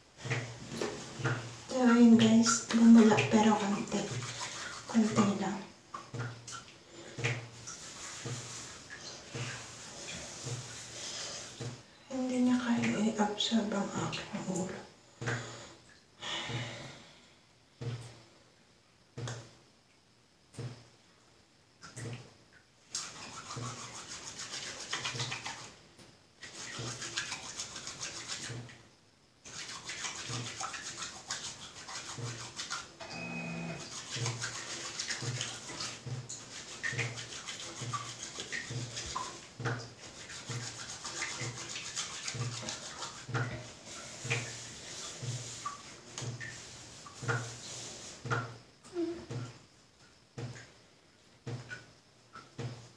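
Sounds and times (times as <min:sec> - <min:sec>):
scrubbing wet hair: 0:00.0 - 0:15.4, 0:22.8 - 0:25.8, 0:26.4 - 0:28.8, 0:29.4 - 0:33.0, 0:33.6 - 0:49.6
wet hands rubbing soap: 0:00.2 - 0:15.5, 0:22.8 - 0:25.8, 0:26.4 - 0:28.8, 0:29.4 - 0:33.0, 0:33.8 - 0:49.6.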